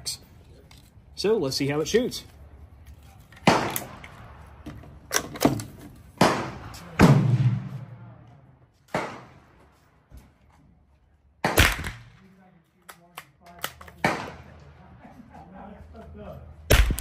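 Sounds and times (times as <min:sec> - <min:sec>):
gunshots: 0:03.4 - 0:04.4, 0:06.2 - 0:08.1, 0:08.9 - 0:09.5, 0:11.4 - 0:12.2, 0:14.0 - 0:14.6, 0:16.7 - 0:17.0
low boom: 0:06.3 - 0:08.3.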